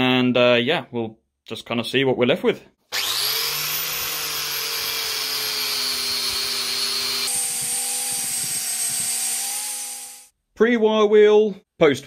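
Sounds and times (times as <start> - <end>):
wire wheel grinder on metal: 3.0 - 10.3.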